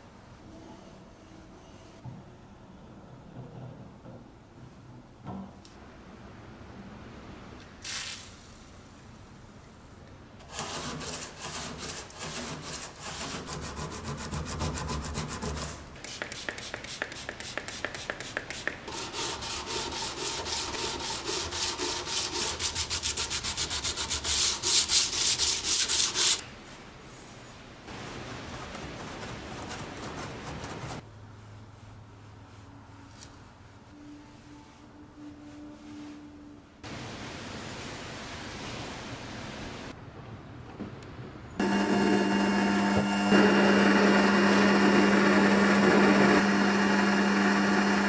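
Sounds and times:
sandpaper rubbing back and forth: 10.5 - 26.4.

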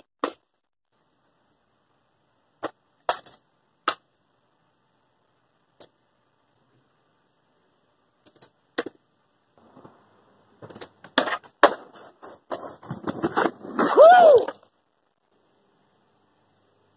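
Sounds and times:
skateboard rolling on concrete: 9.6 - 14.7
skateboard clacks: 10.7 - 12.1.

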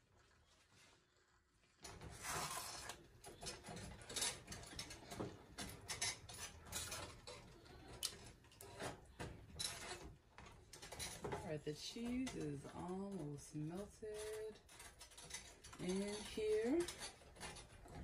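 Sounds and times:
spatula scraping metal skillet: 1.9 - 10.2, 10.8 - 18.0.

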